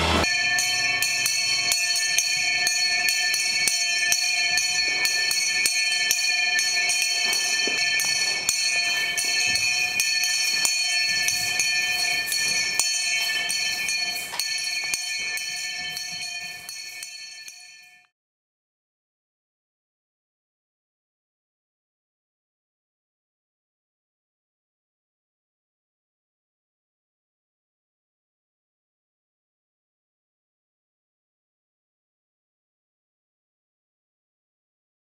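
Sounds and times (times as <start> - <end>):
high ringing tones: 0.0 - 18.1
metallic jingling: 0.2 - 18.0.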